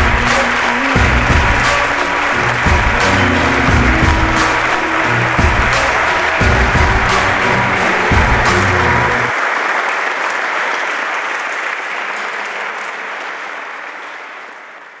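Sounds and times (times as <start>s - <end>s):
music with a low beat: 0.0s - 9.3s
crowd applauding: 0.0s - 15.0s.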